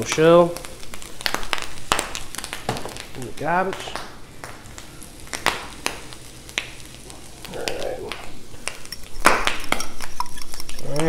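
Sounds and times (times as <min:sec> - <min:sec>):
fork beating egg in glass bowl: 0:09.7 - 0:11.0.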